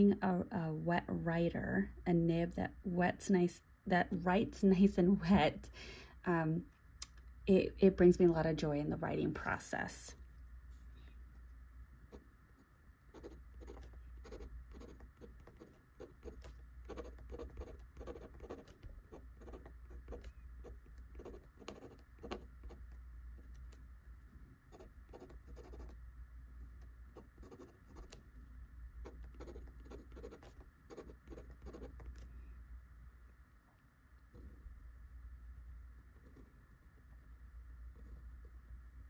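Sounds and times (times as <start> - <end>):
pen nib scratching on paper: 10.2 - 23.9, 24.7 - 26.0, 26.6 - 32.3, 36.0 - 37.1, 37.9 - 38.5.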